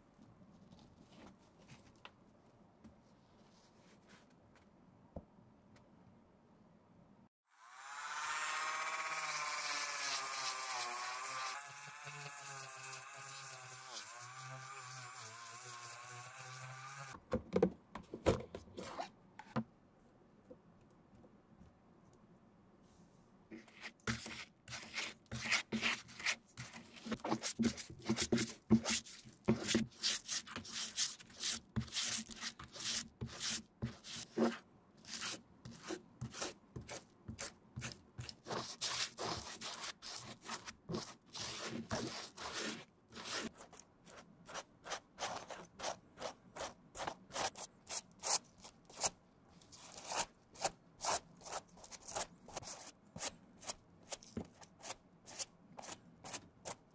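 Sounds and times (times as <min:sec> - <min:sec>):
glue brush scrubbing: 0:23.6 - 0:56.8.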